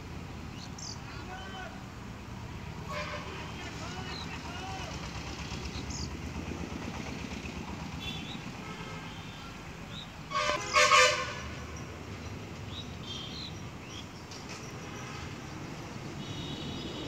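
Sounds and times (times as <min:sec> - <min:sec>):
vehicle horn honking: 0:02.9 - 0:03.6, 0:08.0 - 0:09.6, 0:10.3 - 0:11.7, 0:16.2 - 0:17.0.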